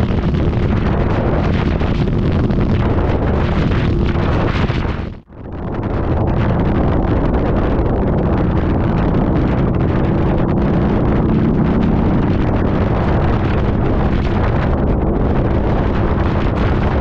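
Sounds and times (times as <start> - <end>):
wind rush on microphone: 0.0 - 17.0
motorcycle engine cruising: 8.4 - 17.0.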